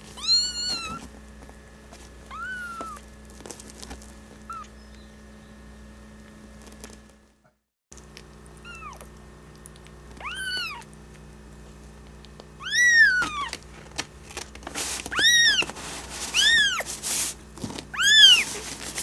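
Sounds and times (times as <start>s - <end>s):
kitten mewing: 0.1s - 1.0s, 2.3s - 3.0s, 8.6s - 9.1s, 10.1s - 10.9s, 12.6s - 13.6s, 17.9s - 18.5s.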